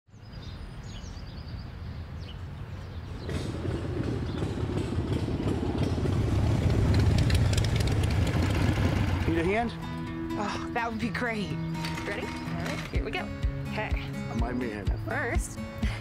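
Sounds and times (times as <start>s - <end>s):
motorcycles rumbling: 2.8s - 15.4s.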